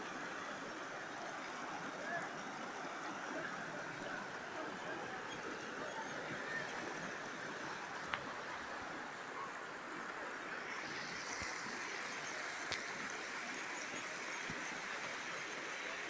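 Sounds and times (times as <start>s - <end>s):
river water rushing over stone: 0.0s - 16.0s.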